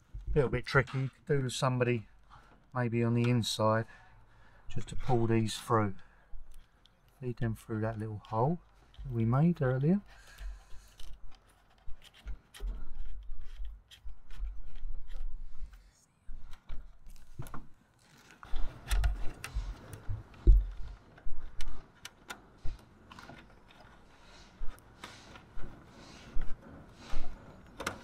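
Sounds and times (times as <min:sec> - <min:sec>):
low bumps: 0:18.6 - 0:21.8
hands scraping and rustling: 0:22.6 - 0:28.0.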